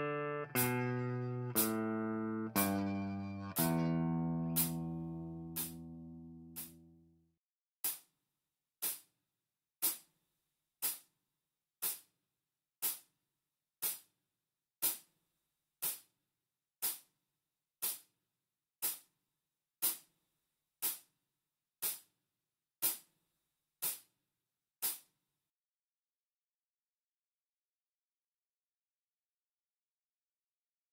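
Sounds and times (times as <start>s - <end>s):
metronome clicking: 0.0s - 6.8s.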